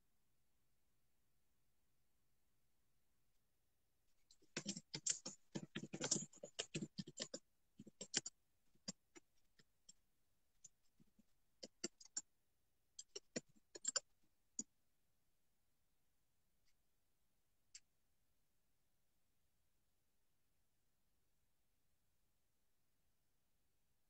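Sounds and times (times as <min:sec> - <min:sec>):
fingers tapping on phone: 0:04.4 - 0:09.7, 0:11.1 - 0:12.3, 0:13.0 - 0:14.1.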